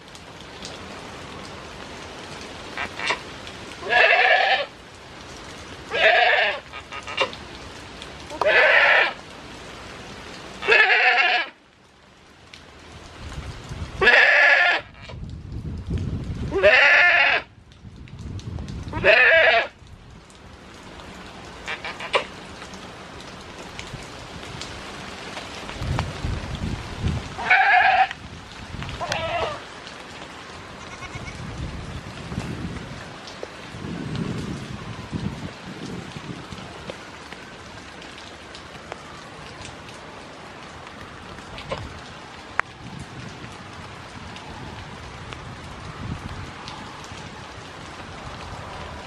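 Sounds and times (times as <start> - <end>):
steady rain: 0.0 - 49.0
goat kids bleating: 3.8 - 4.7, 5.9 - 7.2, 8.3 - 9.2, 10.6 - 11.5, 16.6 - 17.4, 27.4 - 28.2, 29.0 - 29.6, 30.8 - 31.4.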